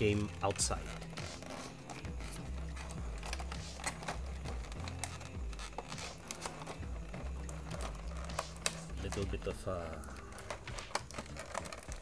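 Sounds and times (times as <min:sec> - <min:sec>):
plastic packaging clicks and crinkles: 0:00.2 - 0:12.0.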